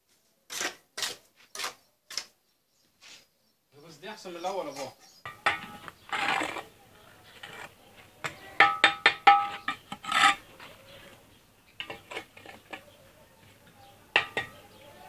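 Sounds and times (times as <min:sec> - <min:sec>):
trowel tapping on bricks: 0:05.3 - 0:06.6, 0:07.4 - 0:10.4, 0:14.1 - 0:14.7.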